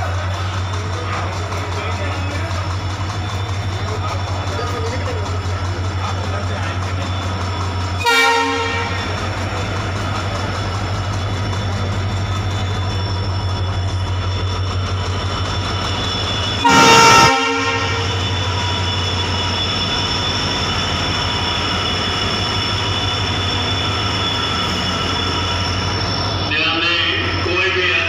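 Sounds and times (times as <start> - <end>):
diesel locomotive engine drone: 0.0 - 28.0
train horn blast: 8.0 - 9.1, 16.6 - 18.4.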